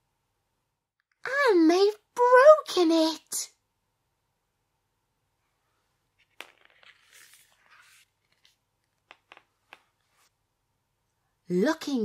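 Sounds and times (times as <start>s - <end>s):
page rustling and scraping: 6.2s - 8.6s.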